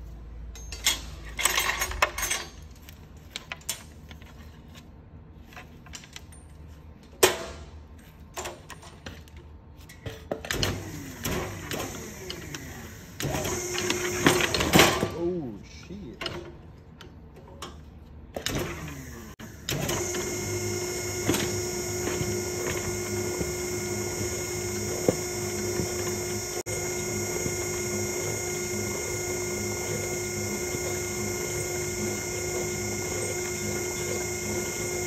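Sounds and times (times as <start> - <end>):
wire spooling machine whine: 10.9 - 14.9, 18.5 - 35.0.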